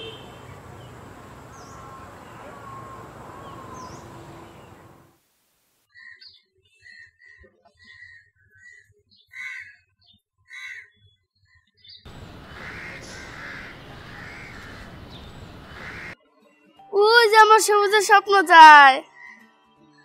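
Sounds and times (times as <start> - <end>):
noisy outdoor background: 0.0 - 6.6, 12.0 - 16.2, 17.0 - 19.0.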